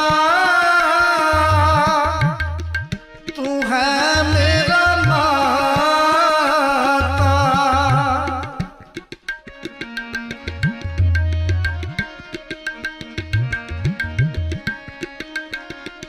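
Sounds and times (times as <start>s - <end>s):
person singing: 0.0s - 2.6s, 3.3s - 8.8s
tabla drumming: 0.0s - 16.0s.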